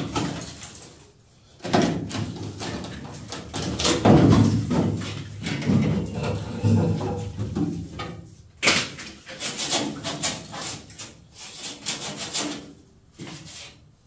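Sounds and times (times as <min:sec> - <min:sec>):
rubber seal scraping and flapping: 0:01.7 - 0:07.8.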